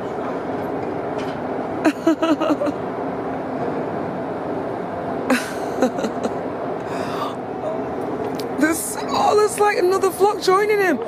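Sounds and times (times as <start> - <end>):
steady background noise: 0.0 - 11.0
person laughing: 1.8 - 2.8, 5.3 - 6.4.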